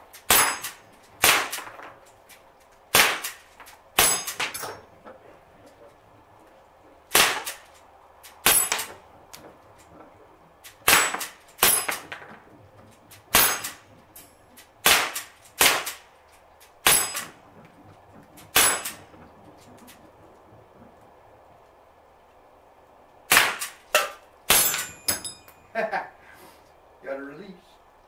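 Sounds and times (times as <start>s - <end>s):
air pistol shots popping: 0.3s - 1.8s, 2.9s - 3.4s, 7.1s - 9.0s, 10.6s - 12.1s, 14.8s - 16.1s, 23.3s - 25.0s
pellets clanging on steel target: 0.3s - 1.9s, 4.0s - 4.8s, 8.4s - 9.0s, 10.9s - 12.3s, 13.3s - 14.3s, 16.8s - 17.4s, 18.5s - 19.2s, 23.6s - 25.7s.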